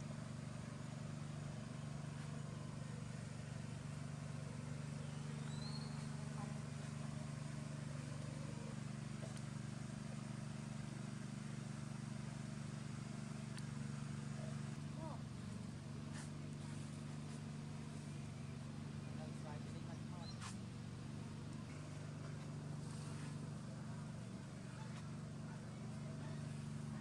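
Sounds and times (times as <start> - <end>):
steady low hum: 0.0 - 27.0
faint high chirps: 4.6 - 7.0.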